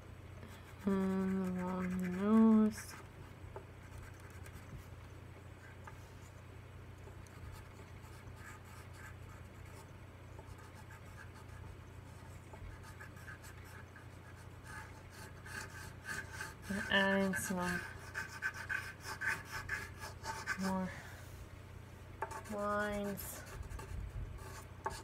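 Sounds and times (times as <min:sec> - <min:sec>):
steady low hum: 0:00.0 - 0:25.0
pencil shading on paper: 0:00.6 - 0:03.0, 0:07.3 - 0:20.9, 0:22.2 - 0:25.0.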